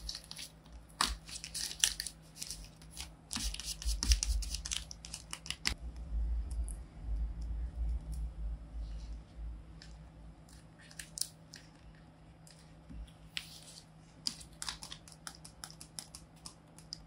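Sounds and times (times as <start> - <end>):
taped paper crinkling: 0.0 - 5.8.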